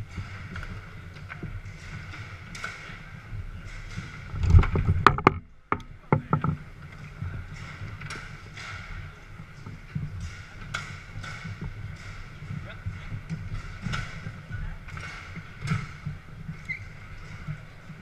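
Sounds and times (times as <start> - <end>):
foosball rods sliding and rattling: 0.0 - 18.0
ball knocks and clicks: 3.6 - 17.5.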